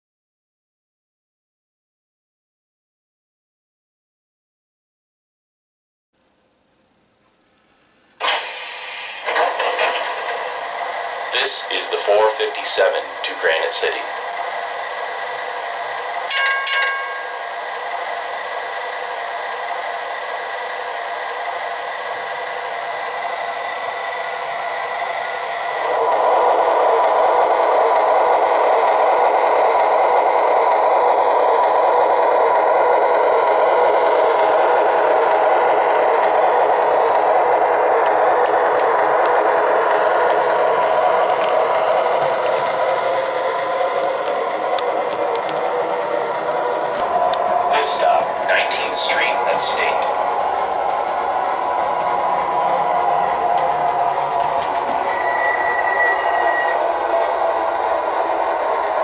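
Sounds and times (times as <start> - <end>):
model streetcar wheels clattering: 9.2 - 10.8, 11.5 - 14.0, 16.3 - 17.7
brief ringing: 16.3 - 17.5.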